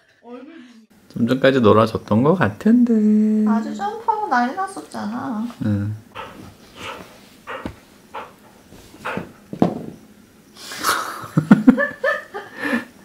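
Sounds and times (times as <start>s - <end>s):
dog snuffling: 6.1s - 9.6s.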